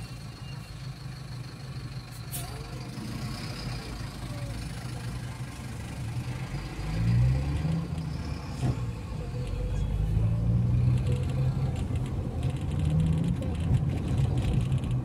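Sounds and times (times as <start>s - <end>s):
car engine accelerating: 2.8s - 15.0s.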